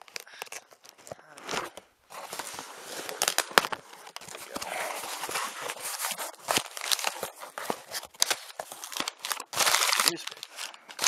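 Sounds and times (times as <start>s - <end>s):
cardboard packaging tearing: 0.0s - 11.0s.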